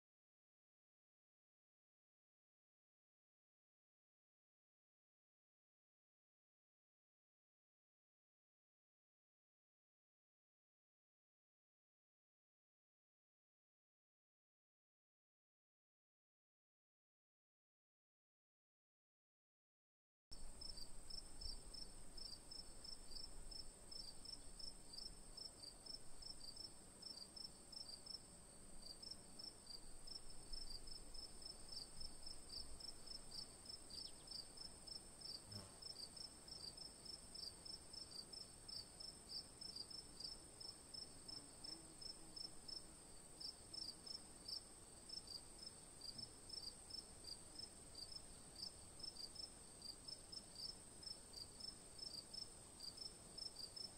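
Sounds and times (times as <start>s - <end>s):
insect chirping: 20.4s - 53.9s.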